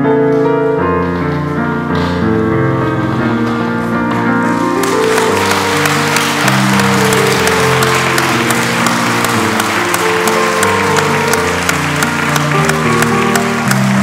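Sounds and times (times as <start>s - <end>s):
slow music with held chords: 0.0s - 14.0s
audience applause: 4.4s - 14.0s.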